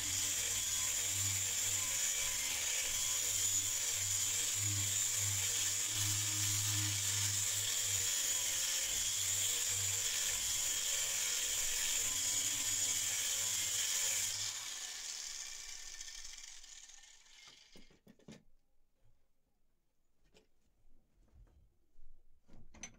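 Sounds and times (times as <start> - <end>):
angle grinder grinding steel: 0.0 - 17.9.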